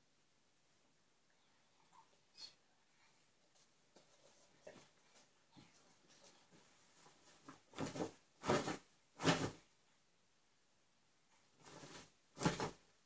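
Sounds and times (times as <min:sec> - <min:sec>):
rustling close to microphone: 0:11.6 - 0:12.9.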